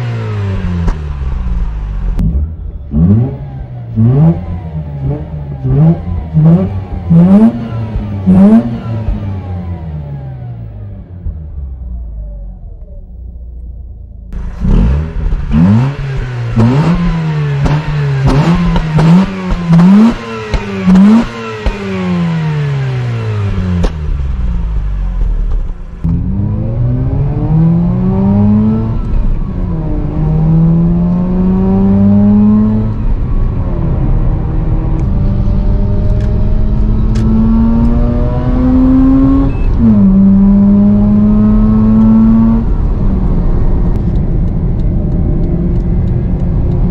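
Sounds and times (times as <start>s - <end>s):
rotary engine revving: 2.1s - 10.0s, 14.4s - 24.6s, 26.0s - 44.2s.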